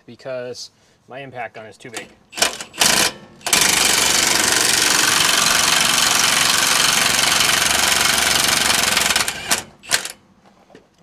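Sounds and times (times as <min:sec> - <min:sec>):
cordless impact gun hammering: 0:02.3 - 0:10.2.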